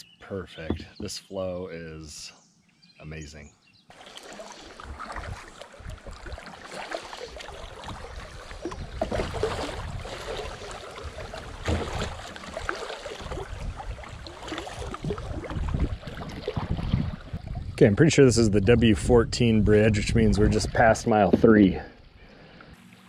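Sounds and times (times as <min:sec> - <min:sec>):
river water rushing and splashing: 0:03.9 - 0:17.3
paddle strokes splashing: 0:03.9 - 0:17.8.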